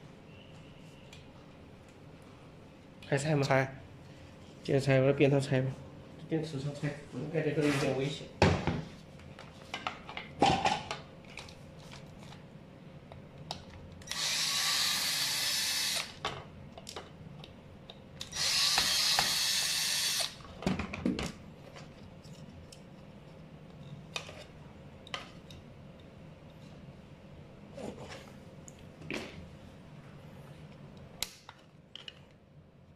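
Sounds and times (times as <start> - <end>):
cordless drill running: 14.1 - 16.2, 18.3 - 20.4.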